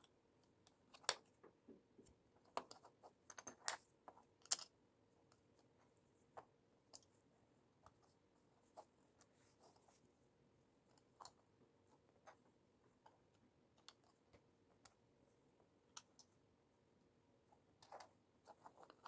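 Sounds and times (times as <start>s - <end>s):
plastic bricks clicking: 4.4s - 4.7s.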